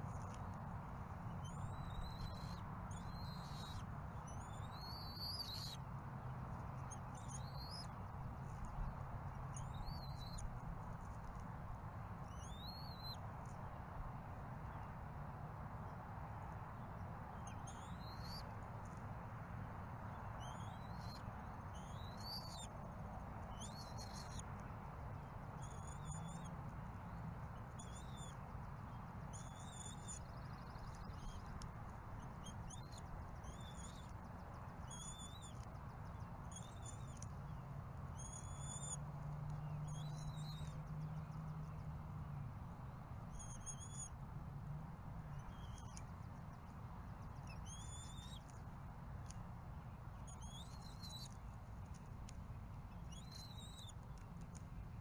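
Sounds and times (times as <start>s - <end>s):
bird chirping: 38.2s - 39.0s, 45.3s - 46.2s, 47.3s - 48.5s.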